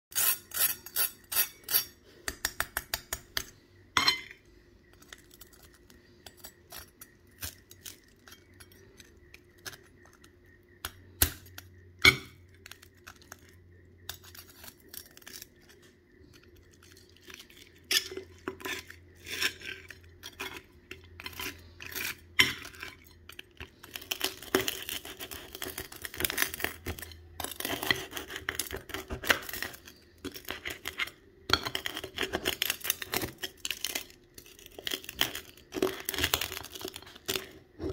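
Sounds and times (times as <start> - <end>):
metal clinking against plate: 4.0 - 4.4
knife cutting crunchy pork skin: 12.6 - 37.9.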